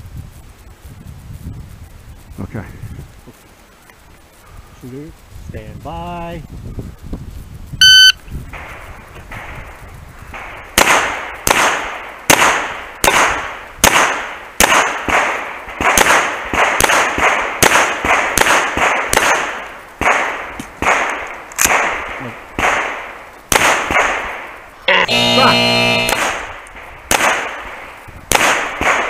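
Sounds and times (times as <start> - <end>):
shot timer beep: 7.8 - 8.2, 24.9 - 26.2.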